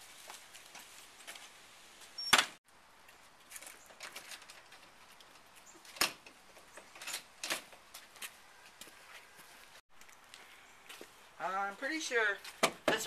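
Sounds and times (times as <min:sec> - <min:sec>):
wooden gate banging shut: 0:05.9 - 0:07.8
light footsteps: 0:07.6 - 0:13.0.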